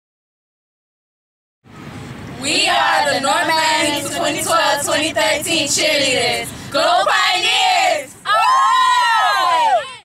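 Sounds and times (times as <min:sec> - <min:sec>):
cheerleaders calling in unison: 0:05.9 - 0:10.0.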